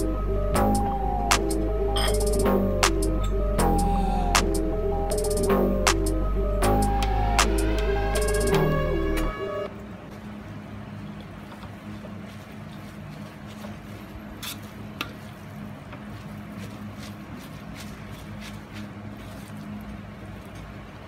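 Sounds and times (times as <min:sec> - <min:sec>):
background music: 0:00.0 - 0:09.7.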